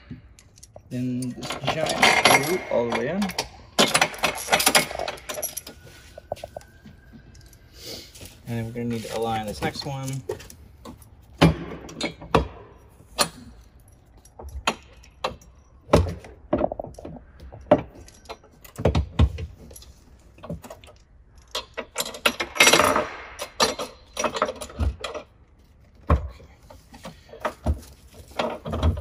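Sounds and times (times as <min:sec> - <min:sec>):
metal frame clanking and rattling: 0:00.0 - 0:07.7, 0:08.3 - 0:29.0
metal scraping rattle: 0:00.4 - 0:06.6.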